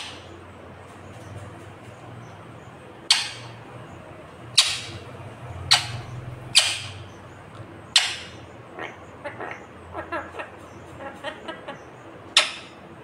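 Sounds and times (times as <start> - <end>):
parakeet squawking: 3.0 - 3.6, 4.5 - 7.2, 7.9 - 12.8.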